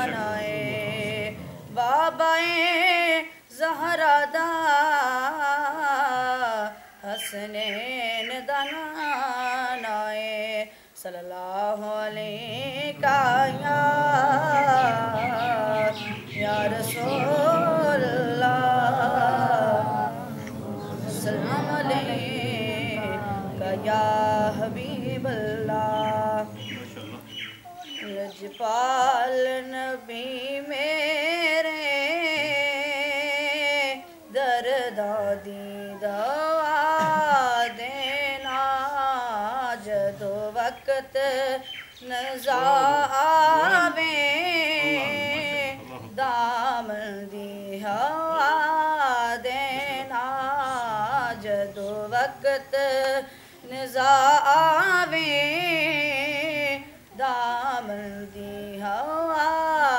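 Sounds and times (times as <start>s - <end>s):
boy singing unaccompanied: 0.0s - 59.9s
singer breathing: 10.7s - 11.0s, 53.2s - 53.7s.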